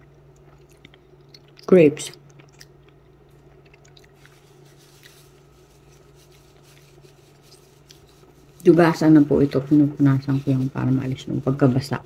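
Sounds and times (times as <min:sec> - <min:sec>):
faint chewing: 0:00.0 - 0:08.7.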